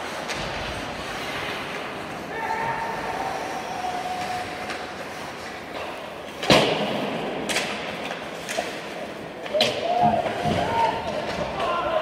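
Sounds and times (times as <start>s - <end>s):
loud bang on rink boards: 6.4s - 7.9s, 9.5s - 12.0s.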